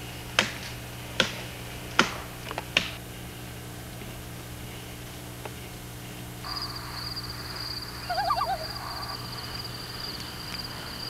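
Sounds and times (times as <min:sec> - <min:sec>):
loon tremolo call: 0:06.4 - 0:11.0
high-pitched trill: 0:07.9 - 0:09.2.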